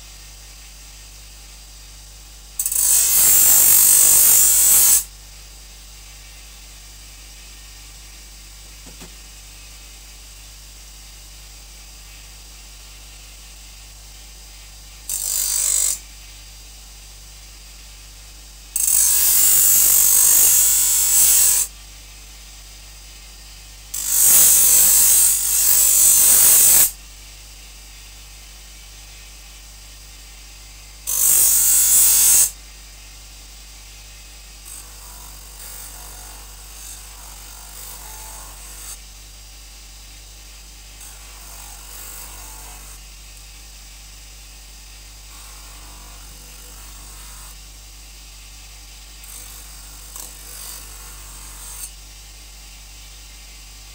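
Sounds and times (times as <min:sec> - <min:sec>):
bench grinder motor hum: 0:02.6 - 0:05.0, 0:15.1 - 0:16.0, 0:18.8 - 0:21.7, 0:24.0 - 0:26.9, 0:31.1 - 0:32.5, 0:34.6 - 0:39.0, 0:45.2 - 0:47.6
knife grinding on wheel: 0:02.6 - 0:05.1, 0:15.1 - 0:16.0, 0:18.8 - 0:21.7, 0:23.9 - 0:26.9, 0:31.1 - 0:32.5.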